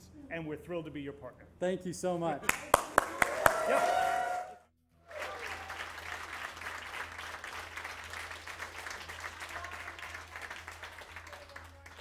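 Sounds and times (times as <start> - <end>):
audience applauding: 2.5 - 12.0.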